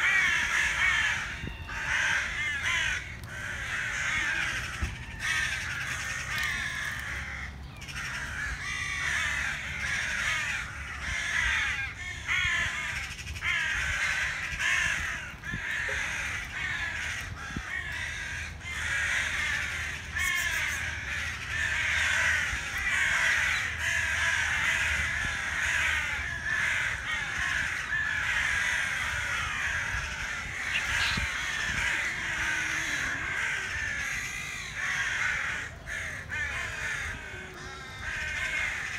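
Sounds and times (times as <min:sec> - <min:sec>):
chorus of birds calling: 0:00.0 - 0:38.9.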